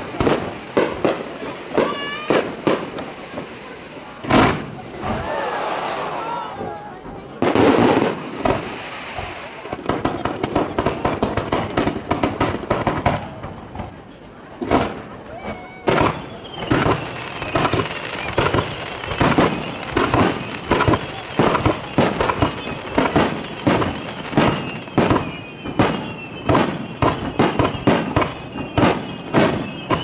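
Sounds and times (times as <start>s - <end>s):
fireworks launching and bursting: 0.0s - 30.0s
high falling whistles: 3.6s - 12.0s, 15.0s - 30.0s.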